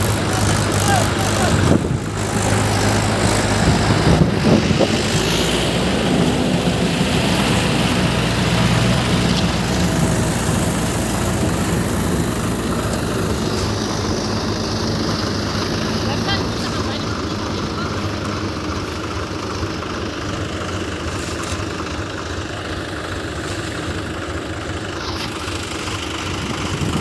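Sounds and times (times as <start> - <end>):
tractor diesel engines running: 0.0 - 27.0.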